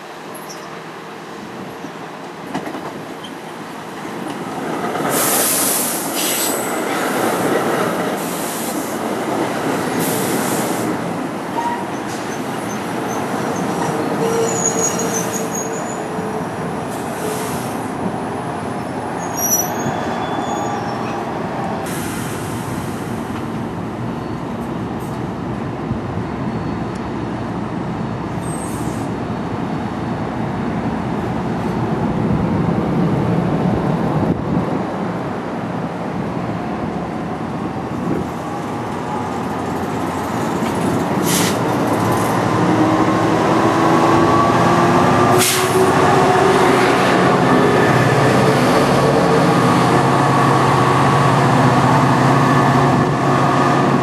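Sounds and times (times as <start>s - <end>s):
train wheels clattering on rails: 2.4s - 11.0s, 38.9s - 42.8s
wheel squeals: 11.6s - 16.0s, 19.2s - 21.2s.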